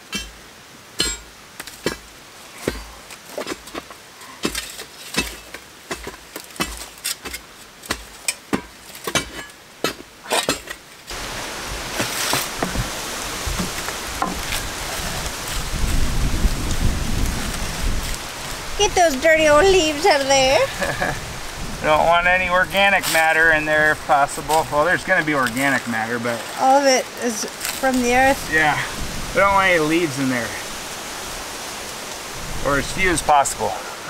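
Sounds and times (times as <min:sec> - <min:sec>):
rustling of dirt and leaves: 0:00.0 - 0:34.0
steel bar tamping soil: 0:02.6 - 0:10.8, 0:11.9 - 0:16.0.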